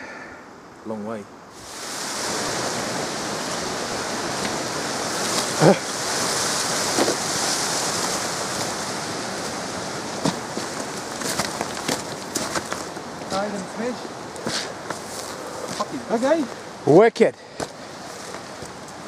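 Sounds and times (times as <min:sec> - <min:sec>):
rushing outdoor hiss: 0:00.0 - 0:19.0
boots knocking on rock: 0:10.2 - 0:13.4.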